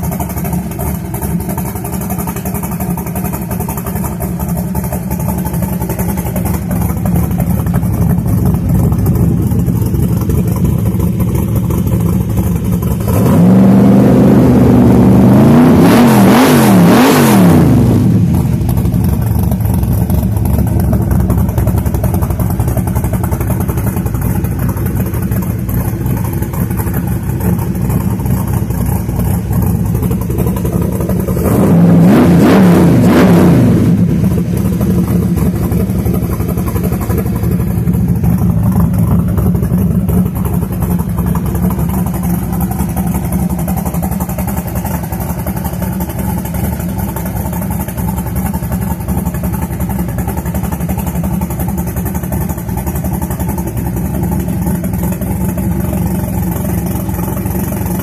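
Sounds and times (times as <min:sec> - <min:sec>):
car engine idling and revving: 0:00.0 - 0:58.0.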